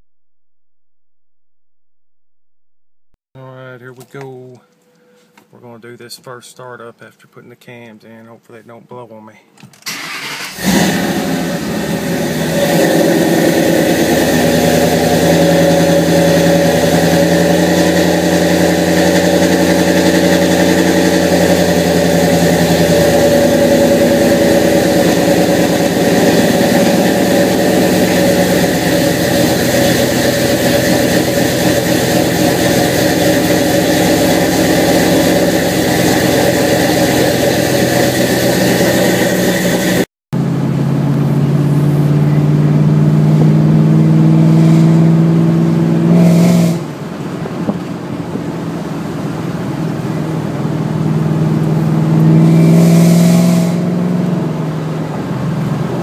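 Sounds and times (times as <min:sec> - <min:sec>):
car engine idling: 0:09.9 - 0:46.1, 0:46.7 - 0:52.8.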